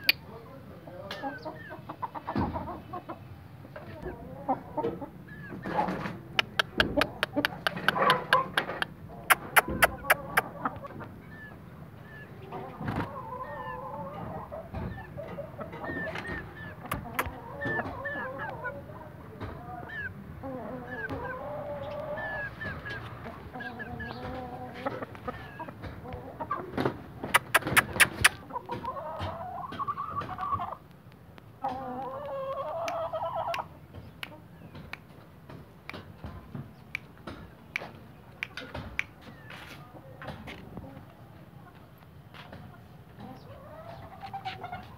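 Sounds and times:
chickens clucking: 0.0s - 44.9s
sharp clicks: 6.4s - 10.4s, 27.4s - 28.4s.

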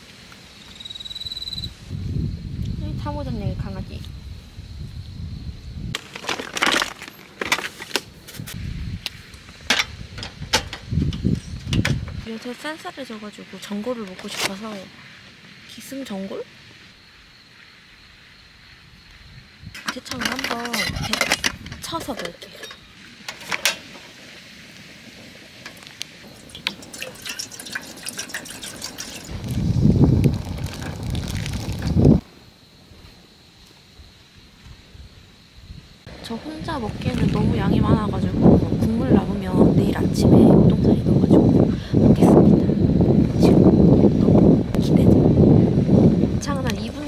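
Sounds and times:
wind rumble on microphone: 1.2s - 6.2s, 8.0s - 27.0s, 27.7s - 47.0s
camping gear clinking: 6.0s - 8.1s, 19.8s - 24.1s
water pouring into metal pot: 26.3s - 32.0s.

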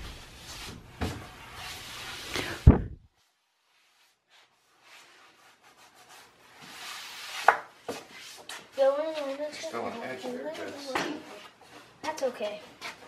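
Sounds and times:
hands rubbing wood: 3.7s - 13.0s.

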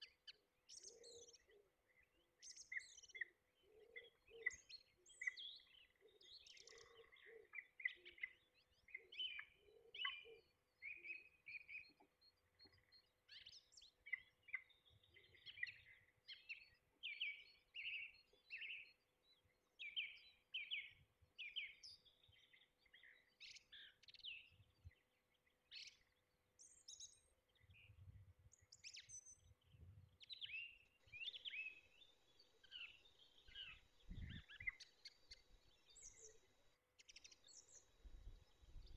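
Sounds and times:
birds chirping: 19.8s - 38.9s.

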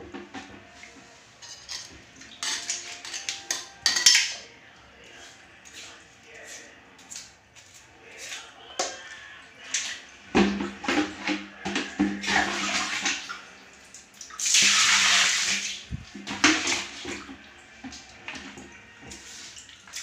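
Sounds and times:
water splashing on tiled floor: 9.6s - 20.0s.

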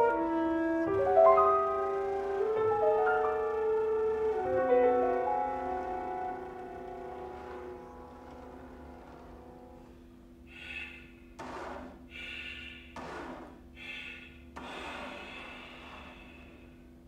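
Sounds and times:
flute and piano chamber music: 0.0s - 9.8s.

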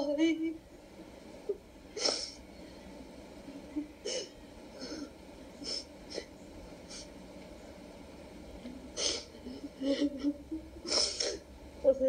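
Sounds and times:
woman sniffing and sobbing: 1.9s - 2.4s, 3.9s - 6.3s, 6.9s - 7.1s, 8.9s - 11.4s.

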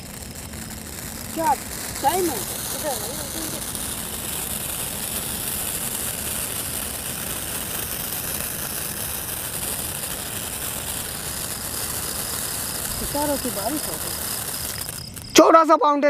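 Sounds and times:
firework fountain hissing: 0.0s - 15.8s.

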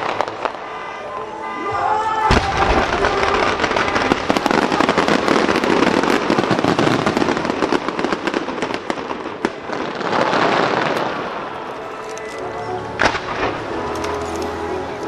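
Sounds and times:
fireworks crackling: 0.0s - 15.0s
firework bang: 2.3s - 11.5s.

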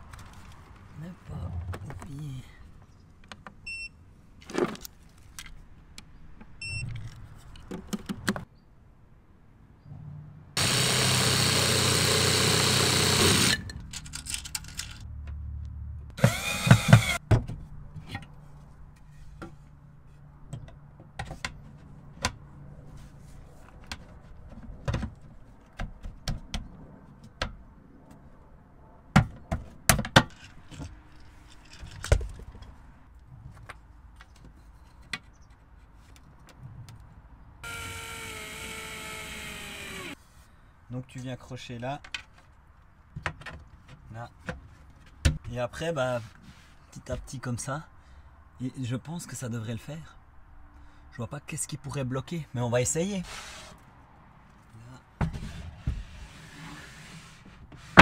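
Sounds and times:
power tool running: 10.6s - 13.6s, 16.2s - 17.2s, 37.6s - 40.2s
tool whirring: 10.6s - 13.6s, 16.2s - 17.2s, 37.6s - 40.2s.

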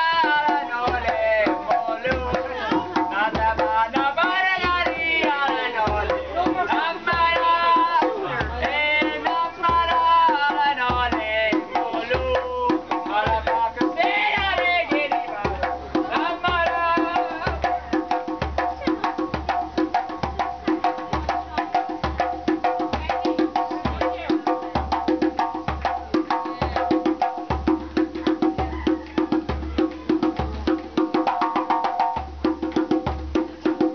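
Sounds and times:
voices: 0.0s - 25.2s, 25.8s - 27.2s, 27.8s - 31.2s.

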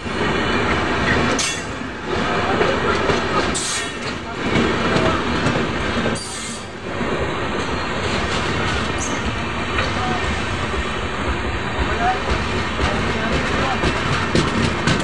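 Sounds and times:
train wheels on rails: 0.0s - 15.0s.

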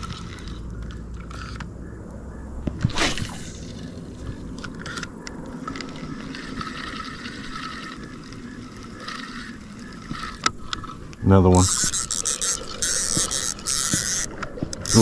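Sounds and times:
fishing reel whirring: 0.0s - 1.6s, 4.6s - 15.0s
light reel clicks: 10.0s - 15.0s.

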